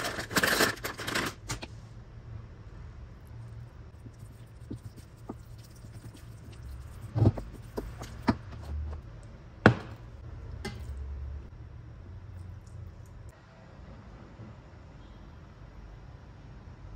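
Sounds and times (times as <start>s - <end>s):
spatula stirring risotto in a pot: 3.9s - 8.9s.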